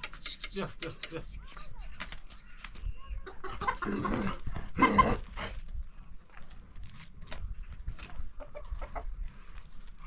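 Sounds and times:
farm animal calling: 2.4 - 5.4.

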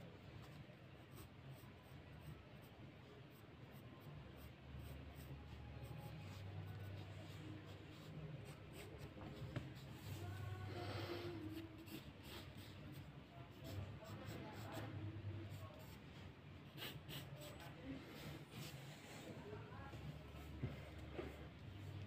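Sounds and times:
low steady hum: 0.0 - 22.0
pencil scratching on paper: 3.3 - 10.2, 11.4 - 16.0, 16.6 - 18.9.

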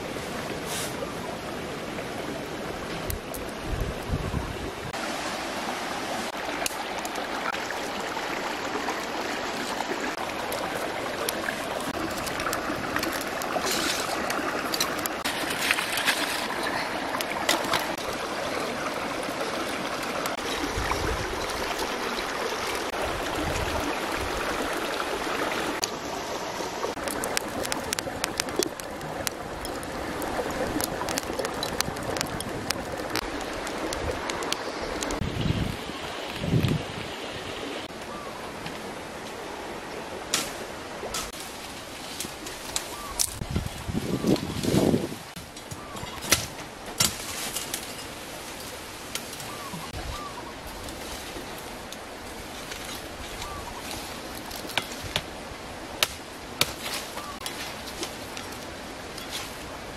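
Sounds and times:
kindling twigs crackling and snapping: 10.4 - 18.2, 27.0 - 36.7, 40.3 - 44.8, 45.4 - 49.8, 50.6 - 55.4, 56.0 - 59.7.

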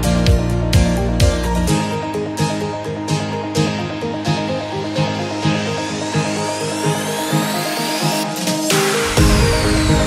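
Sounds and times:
pulsing synth chords: 0.0 - 10.0
rising synth sweeps: 4.1 - 10.0.

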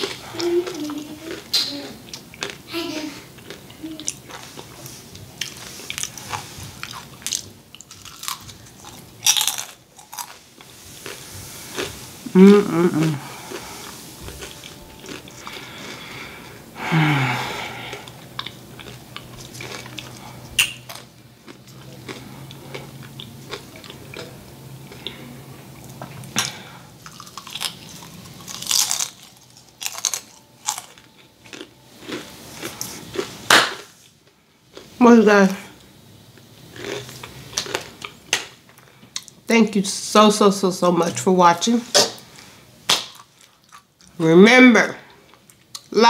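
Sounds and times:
person humming mmm: 0.0 - 2.0, 12.2 - 18.2
crunching and chewing fried food: 0.0 - 39.5, 42.2 - 44.2, 45.0 - 46.0.

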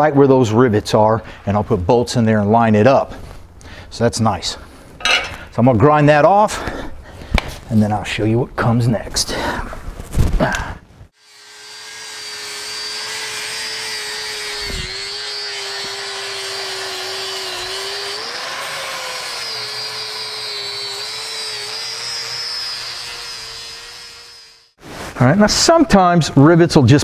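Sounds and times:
electric grinder grinding metal: 11.2 - 24.8.

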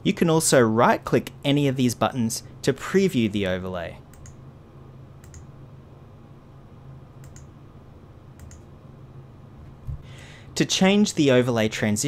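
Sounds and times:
faint steady low hum: 0.0 - 12.0
computer mouse button clicking: 5.2 - 5.5, 7.2 - 7.5, 8.4 - 8.6.

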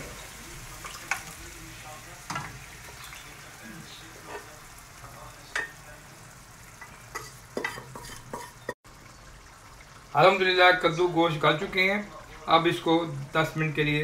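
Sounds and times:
faint frying sizzle: 0.0 - 14.0
wooden spatula scraping and knocking: 7.2 - 8.8.

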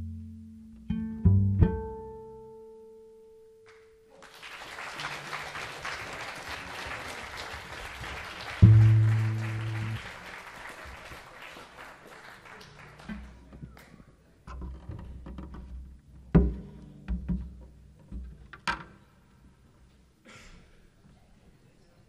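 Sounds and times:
audience applause: 4.1 - 13.9
knocks and thumps: 14.5 - 18.9.

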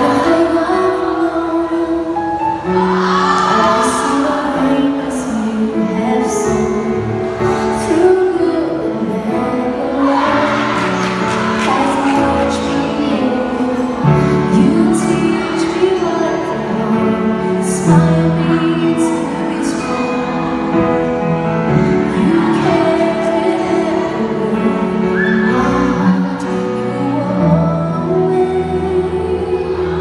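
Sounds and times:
song with singing voice: 0.0 - 30.0.

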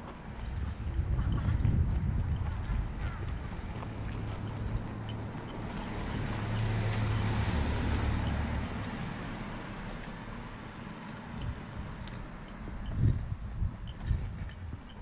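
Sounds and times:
vehicle driving past: 3.5 - 10.6.

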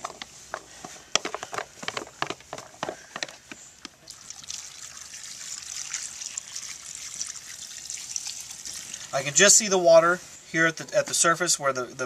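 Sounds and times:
liquid hissing in pot: 4.1 - 9.3.

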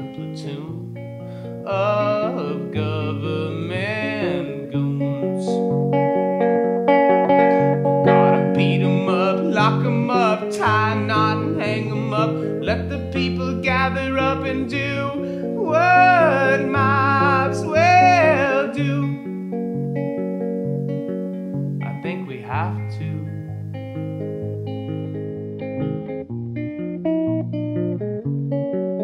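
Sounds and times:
man singing: 0.0 - 0.9, 1.6 - 5.7, 7.5 - 19.3, 21.8 - 23.4
acoustic guitar: 0.0 - 28.9.

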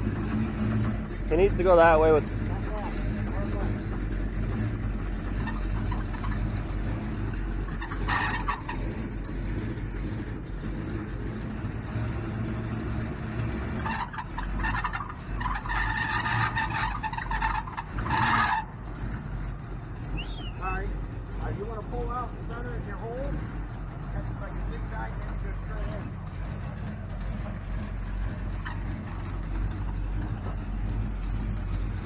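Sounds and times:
car engine idling: 0.0 - 32.0
high squeal: 20.1 - 20.9.

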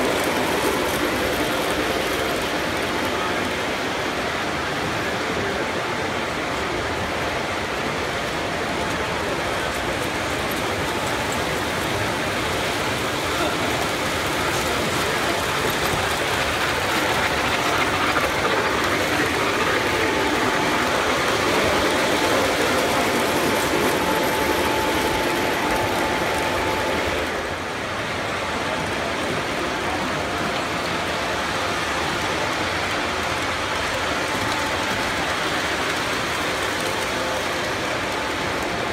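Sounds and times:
model train wheels clattering: 8.9 - 27.4
electric motors humming: 13.1 - 27.6.

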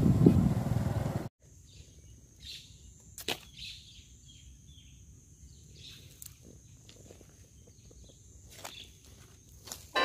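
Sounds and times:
bird chirps: 1.6 - 6.8.

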